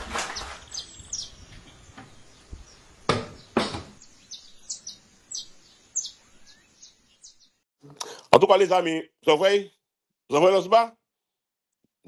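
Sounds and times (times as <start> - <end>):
birds chirping: 0.0 - 8.2
sharp knocks: 3.1 - 4.0.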